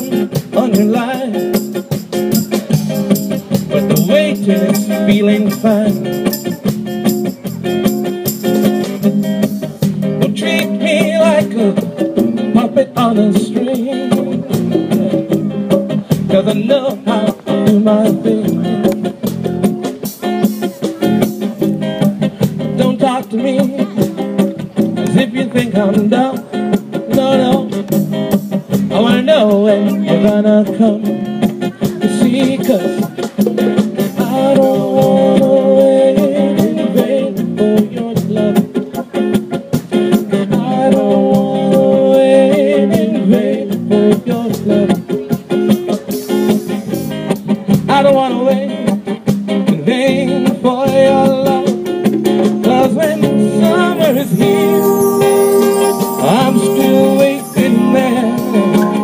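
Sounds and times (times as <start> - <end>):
drum kit: 0.0 - 36.8, 50.9 - 59.0
congas: 0.0 - 47.4, 50.5 - 59.0
acoustic guitar: 0.0 - 59.0
keyboard: 51.2 - 59.0.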